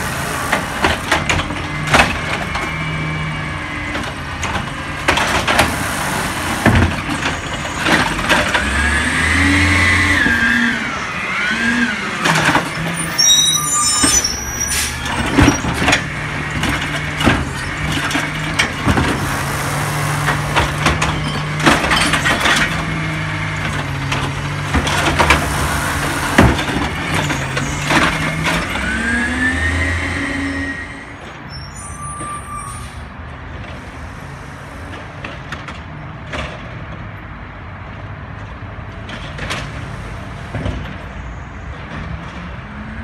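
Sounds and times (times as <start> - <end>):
garbage truck engine: 0.0 - 43.0
trash cart knocking and clattering: 3.9 - 8.8, 15.0 - 28.9.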